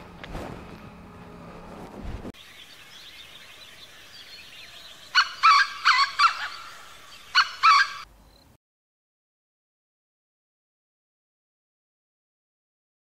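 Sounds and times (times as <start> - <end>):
faint birds chirping: 2.4 - 8.6
fowl squawking: 5.1 - 8.1.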